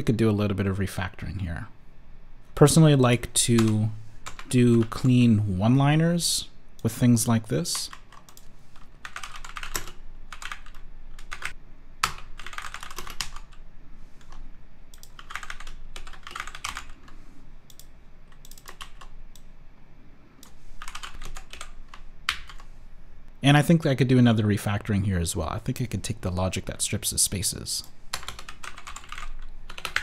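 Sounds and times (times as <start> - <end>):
keyboard typing: 3.6 - 5.0, 7.8 - 13.6, 14.2 - 19.4, 20.4 - 22.7, 28.1 - 30.0.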